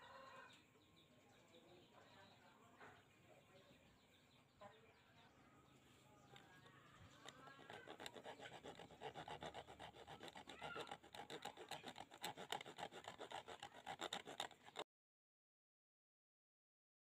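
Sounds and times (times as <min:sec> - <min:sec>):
rasping scraping on wood: 0:07.0 - 0:14.8.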